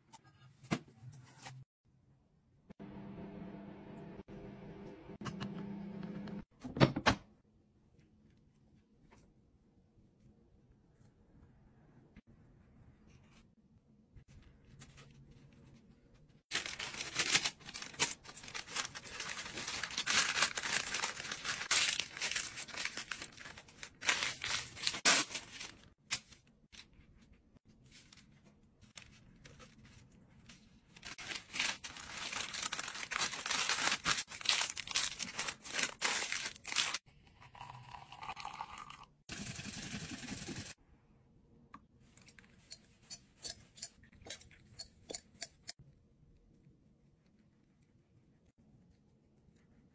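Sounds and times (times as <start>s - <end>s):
paper crinkling and rustling: 14.3s - 37.0s.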